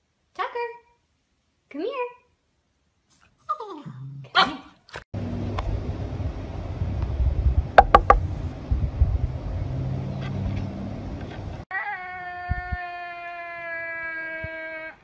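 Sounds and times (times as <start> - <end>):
low outdoor rumble: 5.2 - 9.8.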